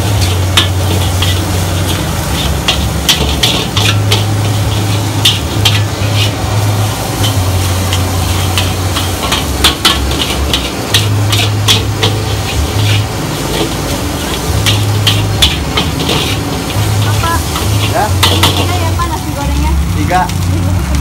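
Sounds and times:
metal spatula scraping a wok: 0:00.0 - 0:19.4
food sizzling: 0:00.0 - 0:21.0.

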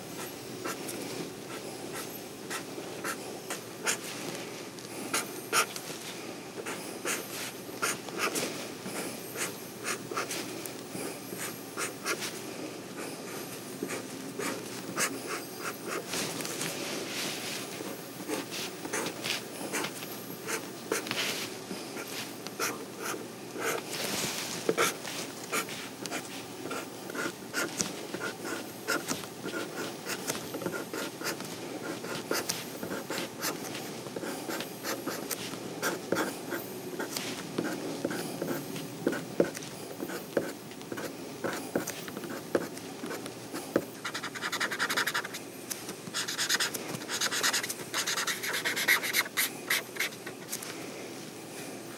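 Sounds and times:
low background hum: 0:00.0 - 0:51.9
marker scratching on paper: 0:05.1 - 0:05.7, 0:06.6 - 0:08.4, 0:11.3 - 0:12.3, 0:13.3 - 0:16.1, 0:22.0 - 0:23.8, 0:24.7 - 0:43.2, 0:44.0 - 0:45.4, 0:46.1 - 0:50.2.

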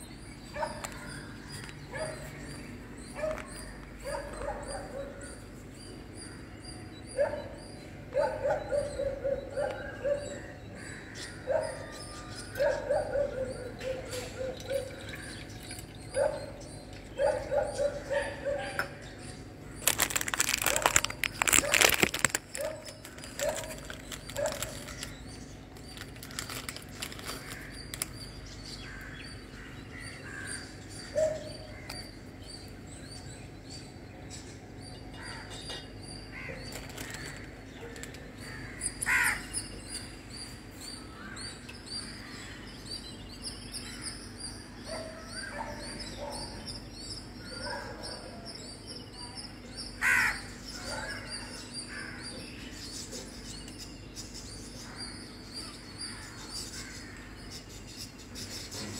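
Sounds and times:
small birds chirping: 0:00.0 - 0:58.9
crow calling: 0:06.2 - 0:32.6, 0:35.1 - 0:40.1, 0:41.0 - 0:42.7, 0:49.8 - 0:52.7, 0:54.8 - 0:57.4.

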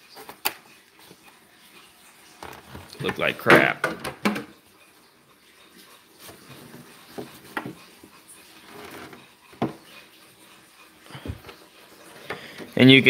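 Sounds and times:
soft knocks and clicks on plastic: 0:08.8 - 0:09.9.

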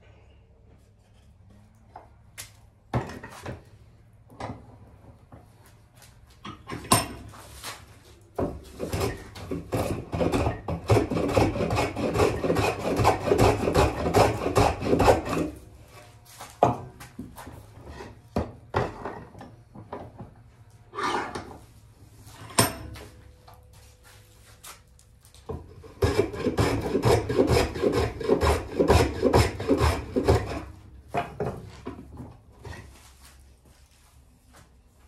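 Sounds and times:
rasping strokes on wood: 0:08.7 - 0:15.6, 0:25.9 - 0:30.7.

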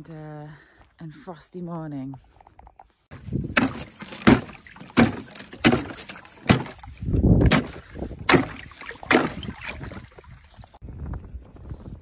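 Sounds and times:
water splashing and sloshing: 0:03.1 - 0:10.8
ice cracking strikes: 0:03.6 - 0:06.8.

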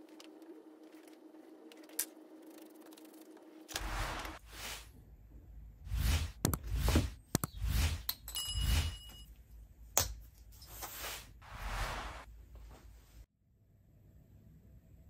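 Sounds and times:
sand-filled flask scraping: 0:03.7 - 0:04.9, 0:10.8 - 0:12.3.

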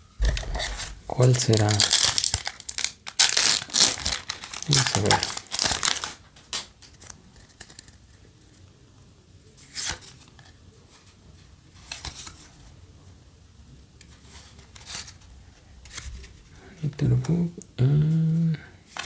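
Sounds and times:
foil wrapper crinkling: 0:00.4 - 0:07.9.

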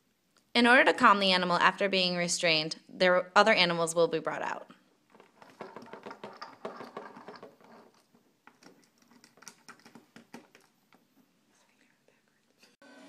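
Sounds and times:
plastic toys clicking on table: 0:08.5 - 0:10.7.

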